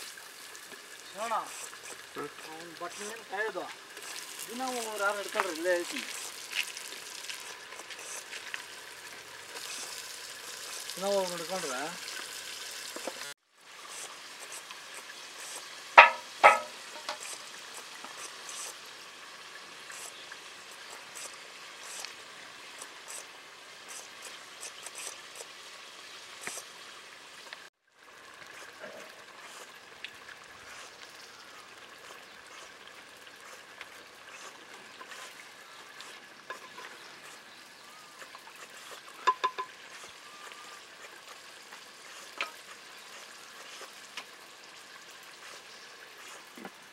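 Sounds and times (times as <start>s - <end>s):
meat sizzling in hot oil: 0.0s - 46.9s
sharp clinks of stirring: 16.0s - 17.2s, 39.2s - 39.8s.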